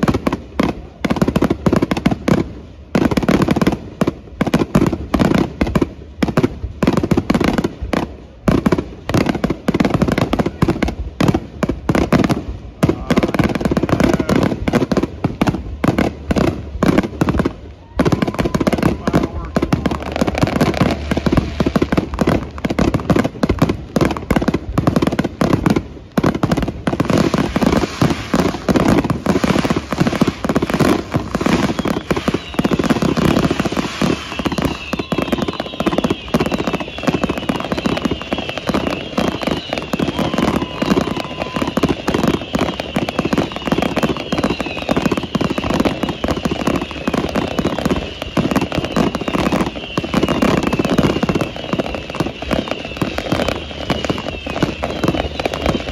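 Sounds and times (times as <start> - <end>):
fireworks bangs and crackling: 0.0 - 55.9
high whistling glides: 26.9 - 55.9.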